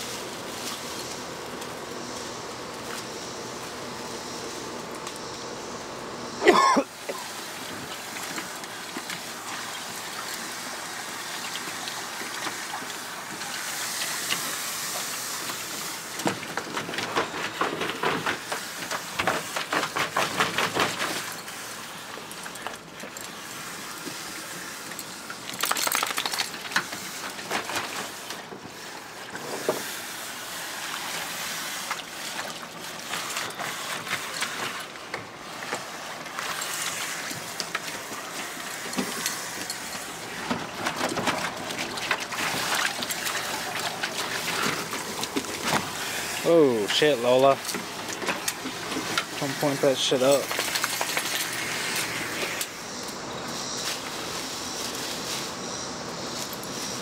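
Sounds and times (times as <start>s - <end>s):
garden hose running: 0.0s - 57.0s
dog splashing in water: 25.4s - 28.4s, 35.8s - 47.0s.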